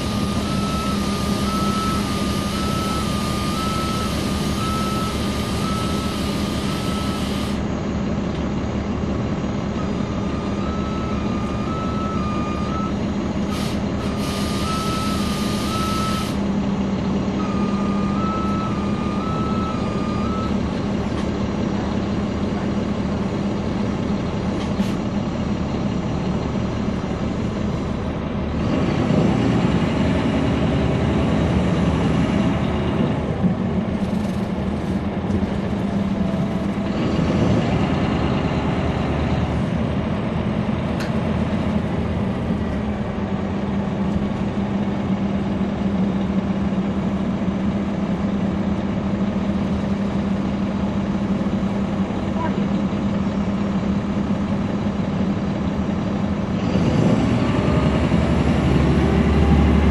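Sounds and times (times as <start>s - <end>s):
bus diesel engine: 0.0s - 59.9s.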